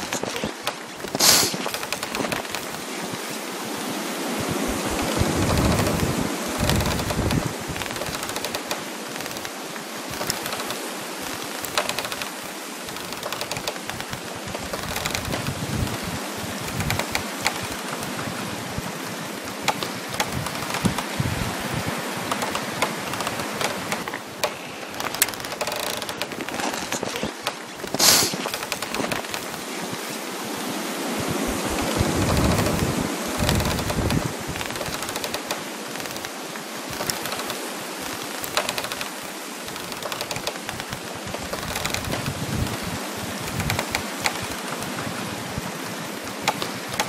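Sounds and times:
frost crackling: 0:00.0 - 0:47.0
wind rushing through trees: 0:00.0 - 0:47.0.

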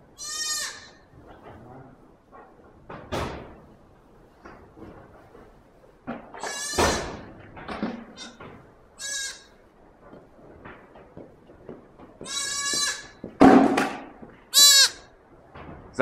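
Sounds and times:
goat kid bleating: 0:00.1 - 0:01.0, 0:06.4 - 0:07.2, 0:08.1 - 0:08.4, 0:09.0 - 0:09.6, 0:12.2 - 0:13.2, 0:14.5 - 0:15.1.

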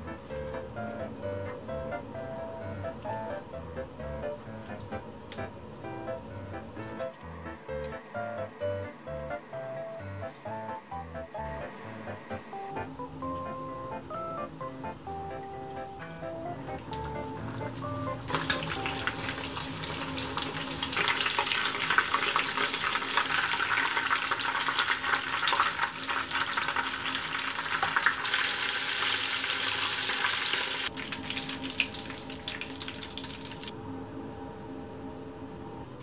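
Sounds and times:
spring rolls sizzling in oil: 0:16.8 - 0:33.7.

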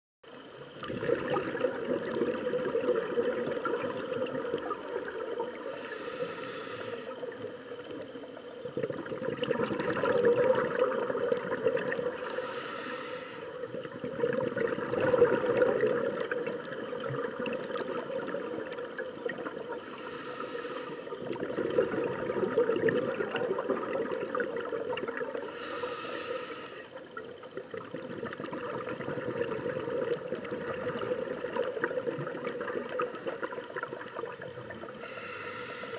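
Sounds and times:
exhaled air bubbling: 0:00.4 - 0:35.9
scuba regulator inhalation hiss: 0:03.4 - 0:07.7, 0:12.0 - 0:13.8, 0:19.6 - 0:21.4, 0:25.3 - 0:27.1, 0:34.9 - 0:35.9.

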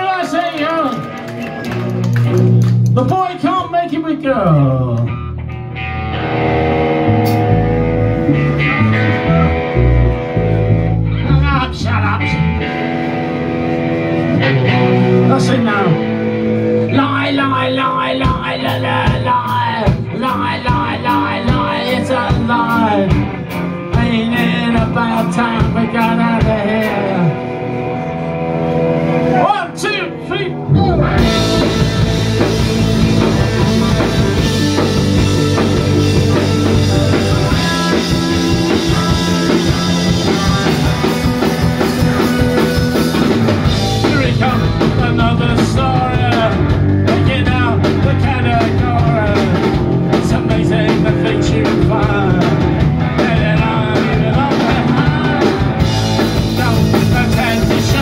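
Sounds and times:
punk rock band playing live: 0:00.0 - 0:58.0
man singing: 0:16.9 - 0:27.5, 0:30.7 - 0:34.9, 0:35.6 - 0:41.6, 0:43.7 - 0:58.0.

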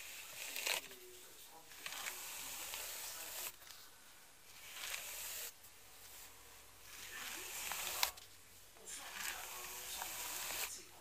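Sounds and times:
hairbrush brushing through hair: 0:00.0 - 0:03.8, 0:04.5 - 0:08.2, 0:08.9 - 0:10.8.

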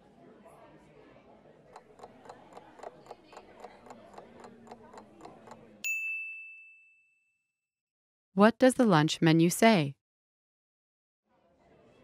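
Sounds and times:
clock ticking: 0:01.7 - 0:05.7
bell-like ding: 0:05.8 - 0:07.5.

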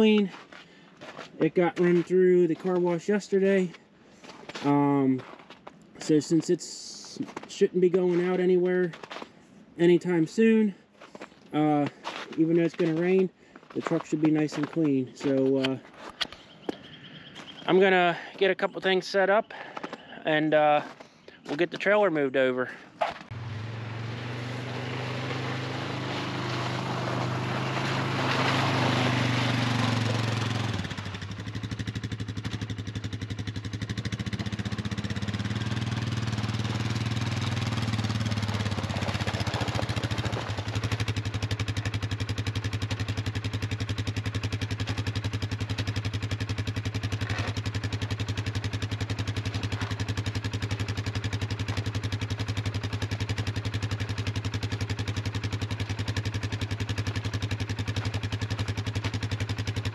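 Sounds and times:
engine idling: 0:23.3 - 0:59.9.

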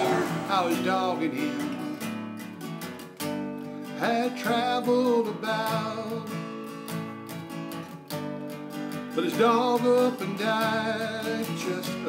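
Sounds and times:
person singing: 0:00.0 - 0:02.2
strummed acoustic guitar: 0:00.0 - 0:12.0.

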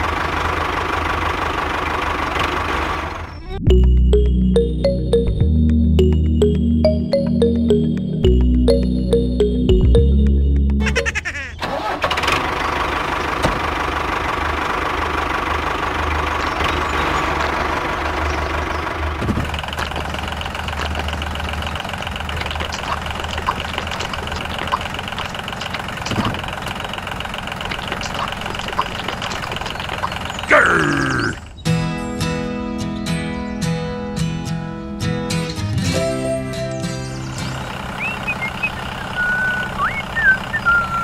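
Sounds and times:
high engine whine: 0:00.0 - 0:10.8, 0:35.9 - 0:41.0
tractor engine running: 0:00.0 - 0:31.6, 0:34.8 - 0:41.0
faint engine ticking: 0:12.2 - 0:30.6, 0:37.6 - 0:41.0.

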